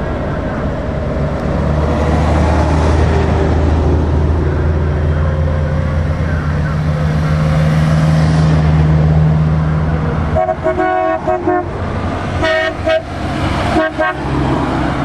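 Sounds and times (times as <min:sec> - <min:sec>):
vehicle engines droning: 0:00.0 - 0:15.0
vehicle horn tooting: 0:10.4 - 0:11.7, 0:12.4 - 0:13.1, 0:13.7 - 0:14.3.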